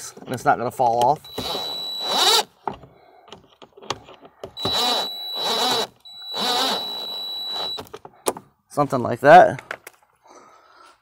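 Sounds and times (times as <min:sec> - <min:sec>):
impact driver motor whine: 0:01.3 - 0:02.5, 0:04.6 - 0:07.9.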